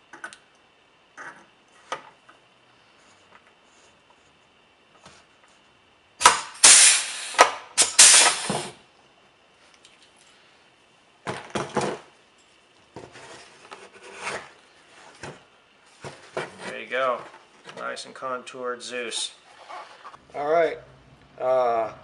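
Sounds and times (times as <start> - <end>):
pop-rivet gun strokes: 6.2 - 8.6.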